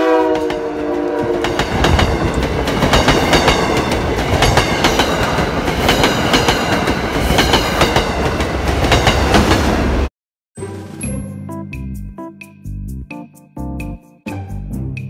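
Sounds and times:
commuter train passing: 0:00.0 - 0:11.4
wheels clicking over rail joints: 0:01.2 - 0:09.5
keyboard music: 0:10.6 - 0:15.0.

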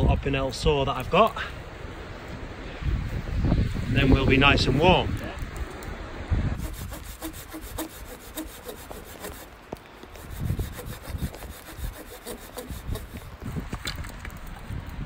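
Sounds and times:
knife scraping wooden log: 0:06.6 - 0:13.5.

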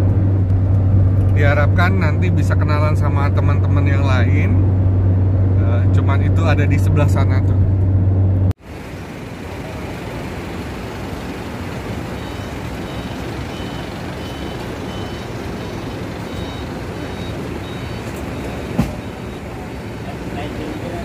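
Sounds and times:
traffic noise: 0:00.0 - 0:21.0
faint high-pitched beeping: 0:12.1 - 0:19.8.

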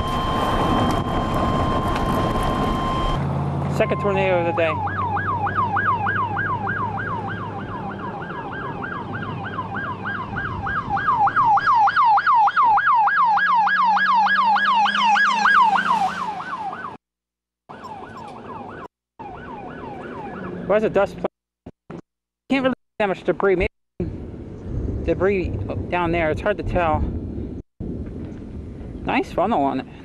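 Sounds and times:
electronic siren yelping: 0:00.0 - 0:03.2, 0:03.8 - 0:17.0, 0:17.7 - 0:20.7.

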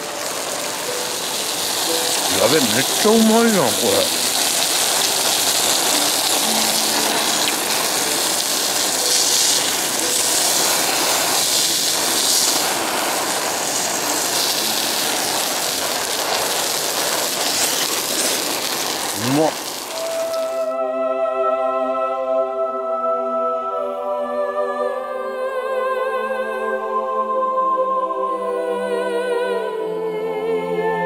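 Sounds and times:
food sizzling on grill plate: 0:00.0 - 0:20.7.

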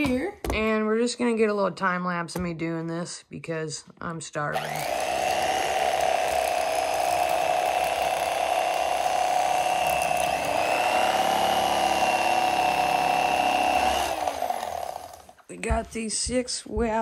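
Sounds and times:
electric knife motor whine: 0:04.6 - 0:15.4.

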